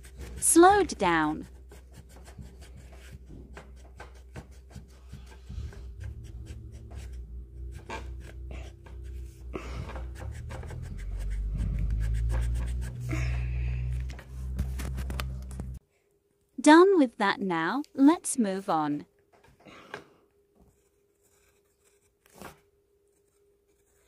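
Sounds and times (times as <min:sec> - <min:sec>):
eraser rubbing on paper: 0:00.0 - 0:13.1
low background rumble: 0:05.1 - 0:15.8.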